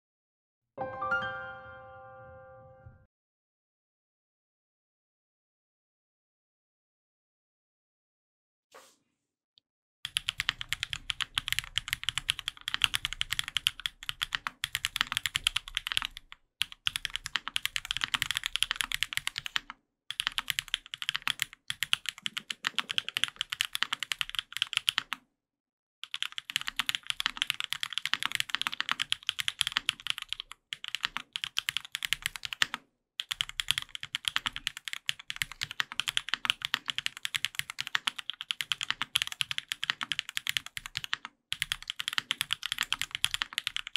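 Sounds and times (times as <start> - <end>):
mechanical keyboard typing: 10.1 - 25.2, 26.0 - 43.9.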